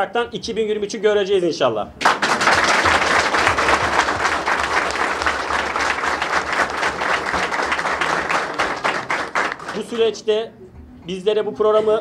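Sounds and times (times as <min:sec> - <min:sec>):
audience applauding: 0:02.0 - 0:10.1.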